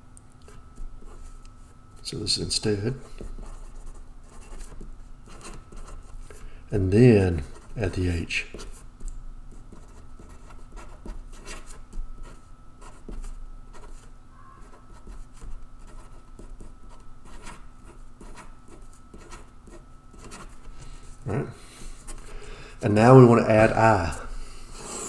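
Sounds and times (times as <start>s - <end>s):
marker pen scratching on paper: 3.0s - 6.4s, 9.5s - 20.8s.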